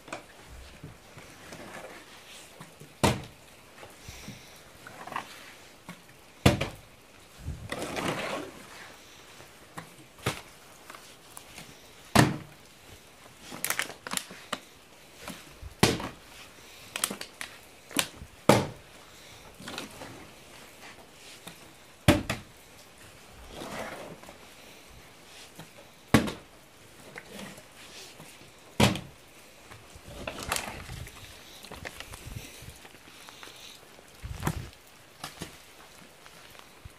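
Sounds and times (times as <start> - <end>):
rustling handling: 13.2 - 18.2.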